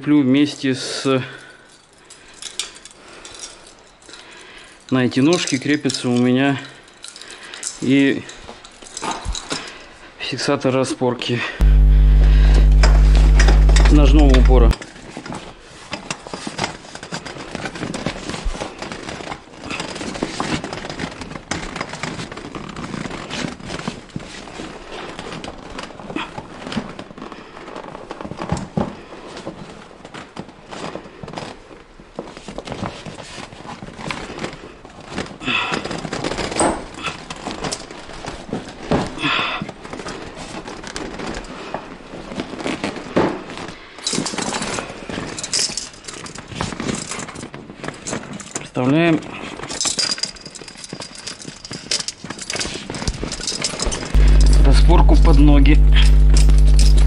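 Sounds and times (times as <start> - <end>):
fabric rustling and crinkling: 15.0 - 36.6, 37.3 - 45.4.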